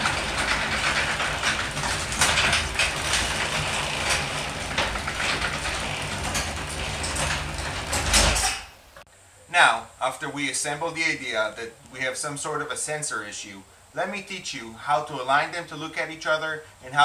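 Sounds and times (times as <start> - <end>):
door rattling along tracks: 0.0 - 9.0
garage door opener humming: 0.0 - 9.0.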